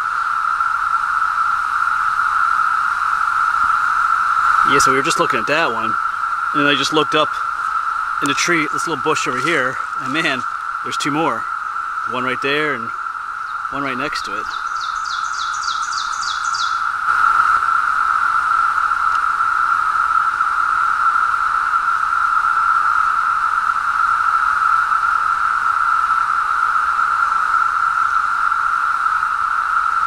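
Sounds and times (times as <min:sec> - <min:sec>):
cicadas droning chorus: 0:00.0 - 0:30.0.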